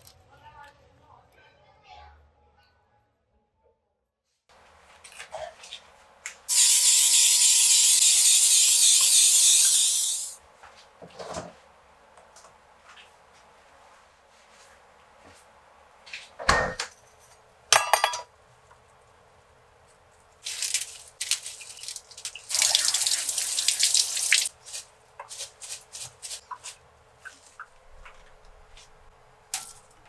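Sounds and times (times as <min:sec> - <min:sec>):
lettuce leaves tearing: 0:20.4 - 0:23.1, 0:24.0 - 0:27.4
water dripping: 0:20.5 - 0:24.5.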